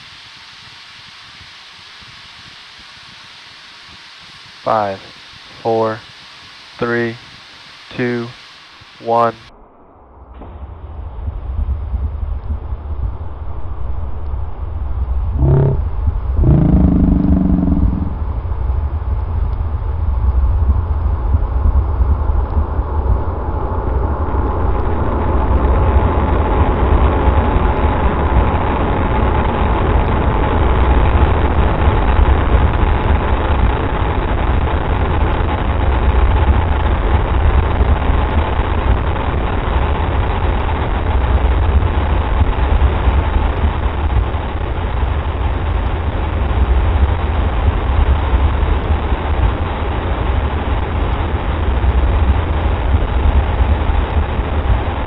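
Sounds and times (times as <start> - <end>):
rocket engines roaring: 15.4 - 18.4.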